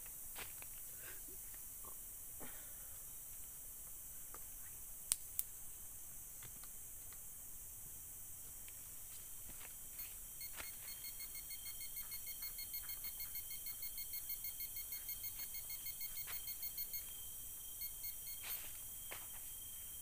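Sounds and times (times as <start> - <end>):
metal detector probe beeping: 10.0 - 19.3.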